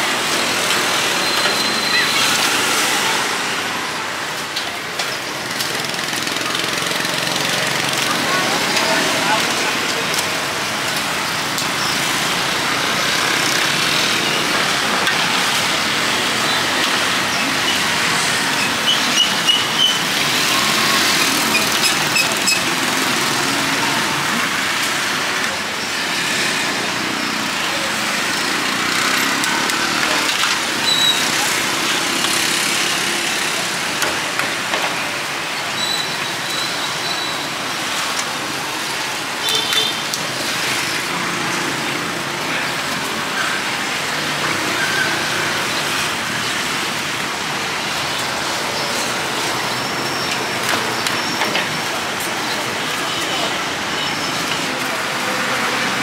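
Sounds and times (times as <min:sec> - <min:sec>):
street traffic: 0:00.0 - 0:56.0
faint voices: 0:00.2 - 0:26.0.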